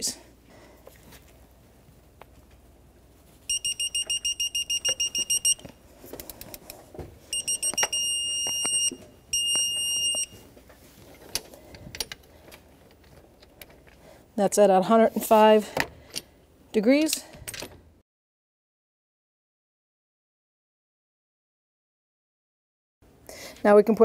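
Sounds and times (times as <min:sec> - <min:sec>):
digital wrench short high beeps: 0:03.5 - 0:05.6, 0:07.4 - 0:10.3
long steady beeps: 0:03.5 - 0:05.8, 0:07.3 - 0:10.4.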